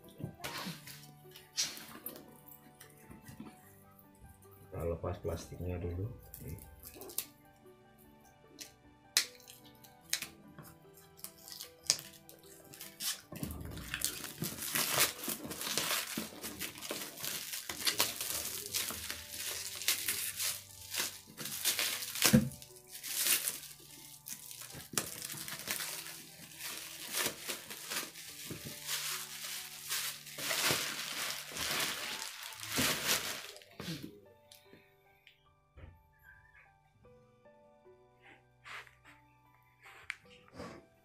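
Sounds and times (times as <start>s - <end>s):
soft background music: 0.0s - 41.0s
bubble wrap handled: 5.8s - 7.4s, 10.9s - 34.0s
plastic wrapping crinkling: 11.1s - 33.9s.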